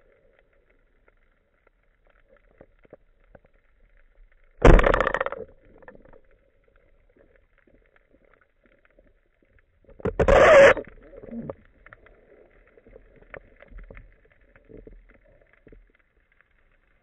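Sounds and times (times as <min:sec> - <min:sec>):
speargun firing underwater: 0:04.6 - 0:06.2.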